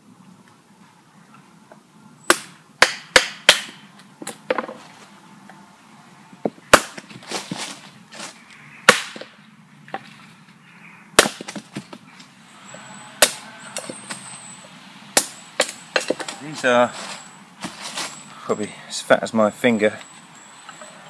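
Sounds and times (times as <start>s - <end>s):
axe chopping dry wood: 2.3s - 4.8s, 6.5s - 7.3s, 8.9s - 9.4s, 11.2s - 12.0s, 13.2s - 13.9s, 15.1s - 16.4s.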